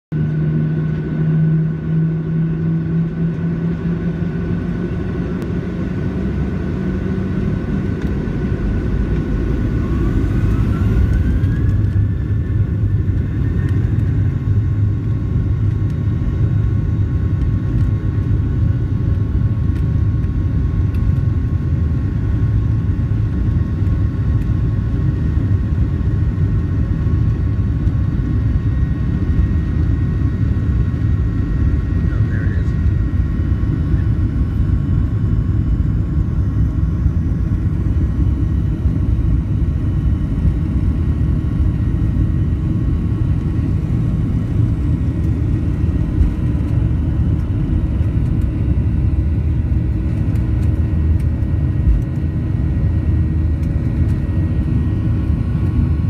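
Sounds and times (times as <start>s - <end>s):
rising engine whine: 0.1s - 56.0s
jet engines spooling up: 5.0s - 15.0s.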